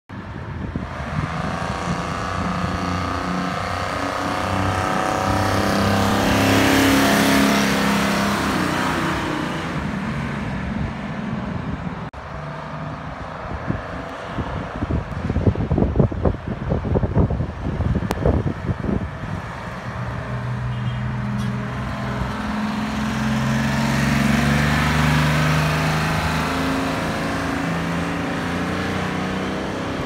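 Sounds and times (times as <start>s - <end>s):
coach engine passing by: 19.4s - 30.0s.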